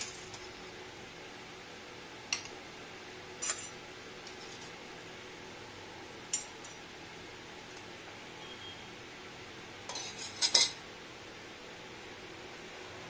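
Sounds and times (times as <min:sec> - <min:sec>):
faint room hum: 0:00.0 - 0:13.0
kitchenware clinking: 0:03.4 - 0:04.7, 0:06.3 - 0:06.8, 0:09.9 - 0:10.8.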